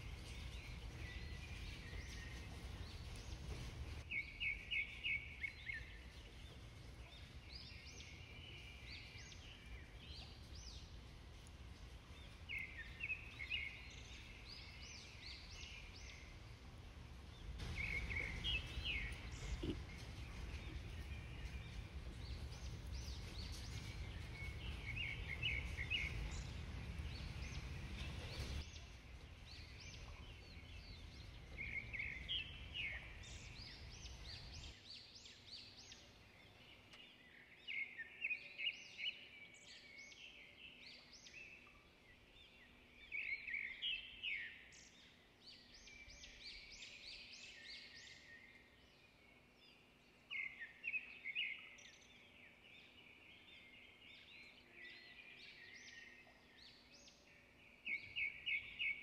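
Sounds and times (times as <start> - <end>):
birds chirping: 0.0 - 59.0
low rumble: 8.2 - 34.7.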